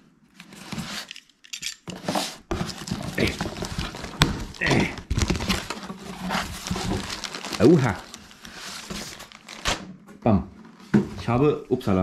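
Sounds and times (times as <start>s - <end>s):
cardboard and tape tearing: 1.9s - 9.9s.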